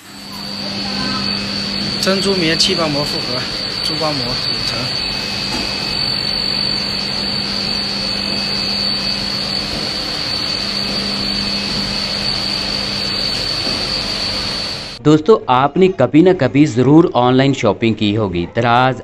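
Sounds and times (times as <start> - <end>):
laminating machine hissing: 0.0 - 15.0
low hum: 0.0 - 15.0
high whine: 0.0 - 15.1.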